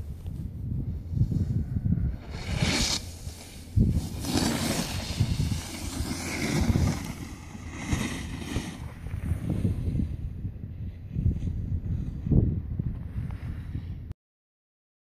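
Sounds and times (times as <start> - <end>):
wind buffeting microphone: 0.0 - 14.1
ski edges scraping snow: 2.2 - 10.0.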